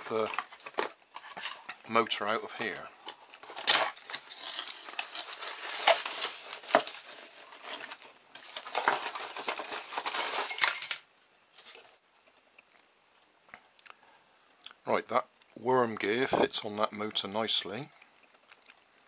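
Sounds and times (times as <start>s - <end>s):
plastic toy parts clattering: 0.0s - 1.8s, 3.0s - 11.1s.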